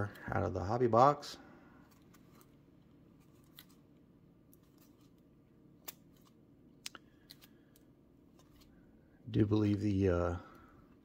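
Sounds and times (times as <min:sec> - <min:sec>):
trading cards clicking and sliding: 0:01.8 - 0:03.9, 0:04.5 - 0:08.8.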